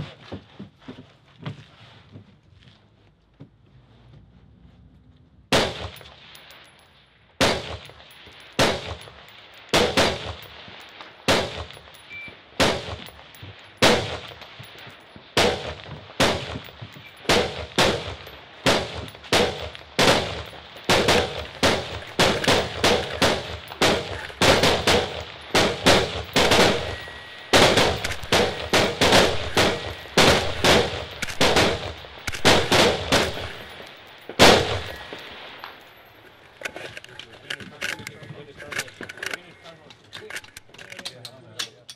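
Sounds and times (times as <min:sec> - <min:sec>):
rifle shots: 0:05.5 - 0:06.6, 0:07.4 - 0:35.8.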